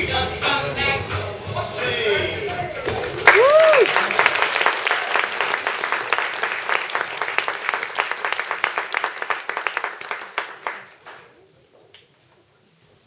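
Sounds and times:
audience applauding: 2.8s - 11.4s.

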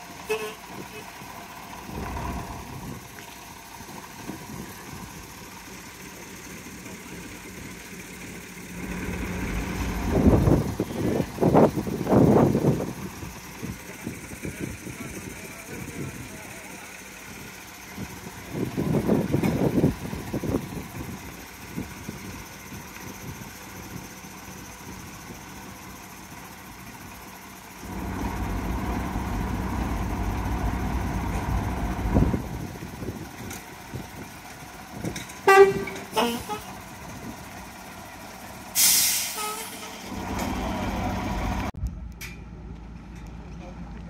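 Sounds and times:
truck engine running: 0.0s - 44.0s
short horn toots: 0.3s - 1.1s, 35.4s - 36.8s, 38.8s - 39.9s
air brakes hissing: 35.4s - 36.8s, 38.6s - 40.9s.

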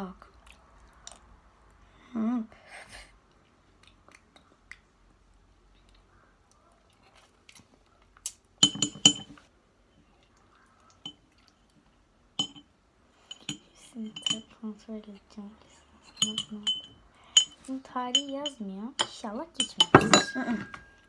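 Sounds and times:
metal spoons clinking on glass: 8.6s - 9.4s, 12.4s - 14.5s, 16.0s - 21.0s.

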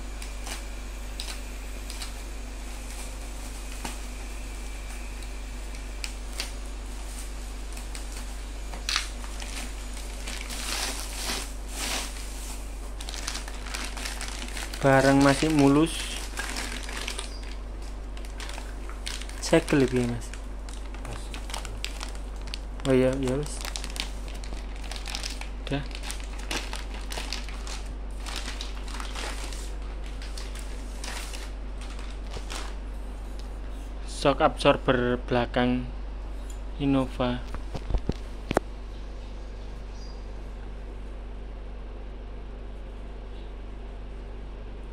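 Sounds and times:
plastic bag crinkling: 0.0s - 33.6s
bubble wrap rustling: 0.0s - 33.8s
steady low hum: 0.0s - 44.9s.

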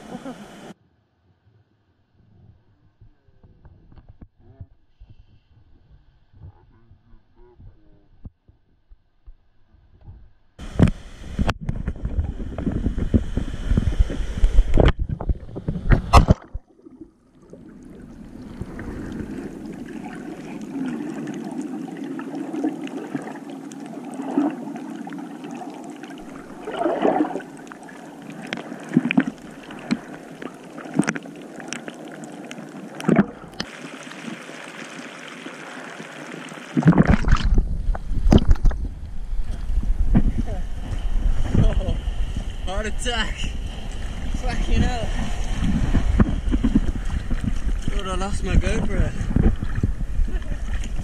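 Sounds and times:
muffled underwater hiss: 0.0s - 0.8s, 10.6s - 16.5s, 17.5s - 51.0s
wind noise on microphone: 2.2s - 16.6s, 36.8s - 51.0s
gurgles and clicks: 9.9s - 42.5s, 43.6s - 51.0s
rushing surf: 17.6s - 51.0s.

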